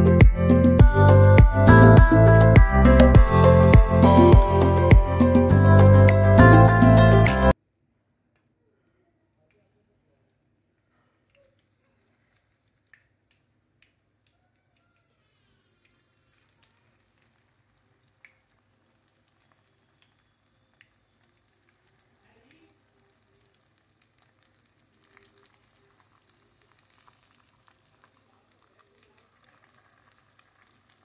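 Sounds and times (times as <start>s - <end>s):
food sizzling in oil: 18.8s - 31.0s.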